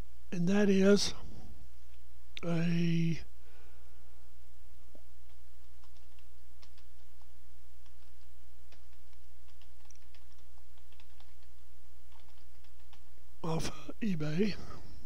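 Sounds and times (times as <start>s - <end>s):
steady low hum: 0.0s - 15.0s
keyboard typing clicks: 5.3s - 7.1s, 7.8s - 13.0s.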